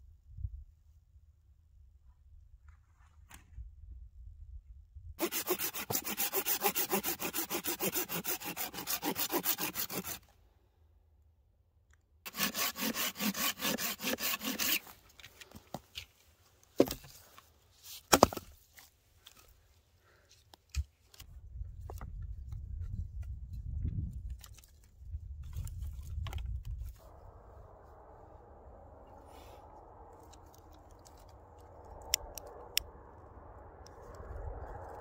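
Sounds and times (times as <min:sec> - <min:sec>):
hand saw cutting branch: 0:05.2 - 0:10.3, 0:12.3 - 0:15.0.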